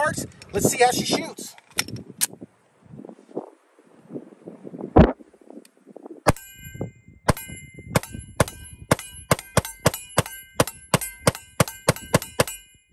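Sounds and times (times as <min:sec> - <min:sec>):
steel target ringing: 0:06.3 - 0:12.9
pistol shots: 0:08.0 - 0:12.6.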